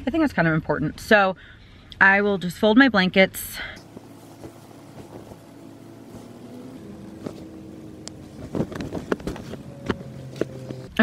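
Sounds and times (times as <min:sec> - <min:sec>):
low motor hum: 0:03.3 - 0:11.0
fabric rustling: 0:03.8 - 0:11.0
handling knocks: 0:03.8 - 0:11.0.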